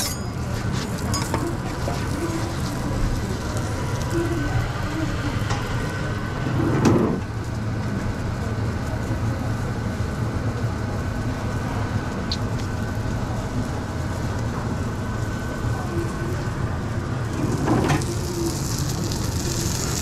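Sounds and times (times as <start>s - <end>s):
kitchen extraction rumble: 0.0s - 7.3s, 15.6s - 20.0s.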